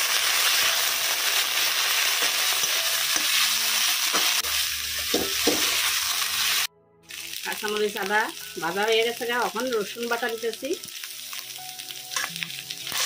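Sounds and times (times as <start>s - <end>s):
onions sizzling in hot oil: 0.0s - 13.0s
metal spatula scraping a wok: 12.1s - 13.0s.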